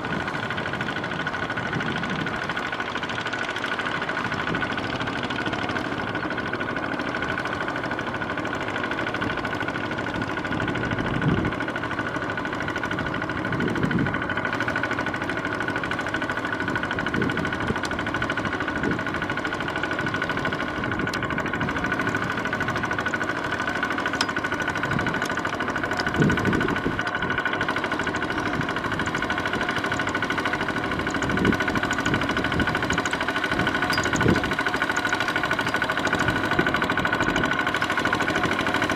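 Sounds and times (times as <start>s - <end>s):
diesel engine running under load: 0.0s - 38.9s
wheels churning through mud: 0.0s - 38.9s.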